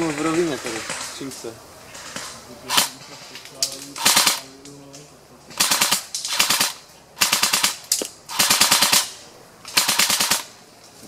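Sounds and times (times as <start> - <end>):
airsoft guns firing bursts: 2.0 - 3.0, 4.0 - 4.5, 5.5 - 10.6.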